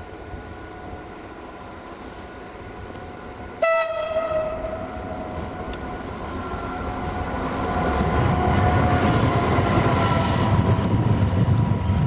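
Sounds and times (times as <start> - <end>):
train rumbling: 0.0 - 12.0
train horn: 3.6 - 5.6.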